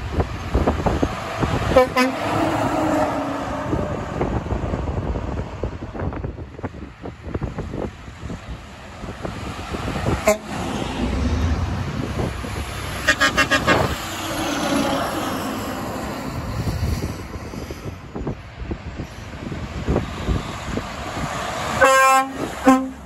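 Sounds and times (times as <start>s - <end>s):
passing truck and traffic: 0.0s - 23.0s
truck air horn toots: 1.7s - 3.4s, 10.2s - 10.7s, 12.9s - 14.3s, 21.8s - 23.0s.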